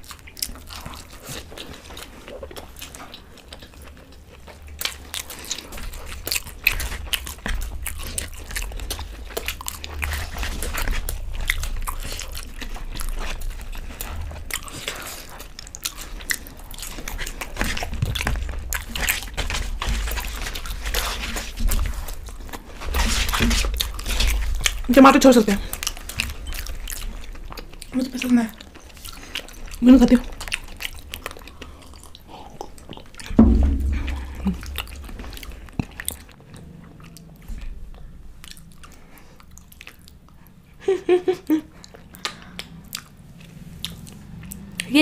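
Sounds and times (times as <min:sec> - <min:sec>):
people chewing food: 0:00.0 - 0:45.0.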